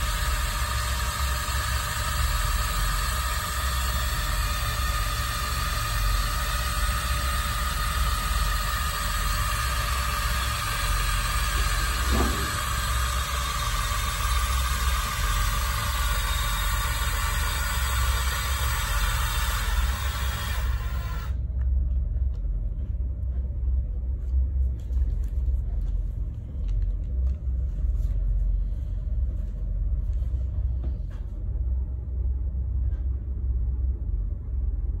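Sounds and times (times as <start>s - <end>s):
cordless drill motor running: 0.0s - 21.4s
low rumble: 20.7s - 35.0s.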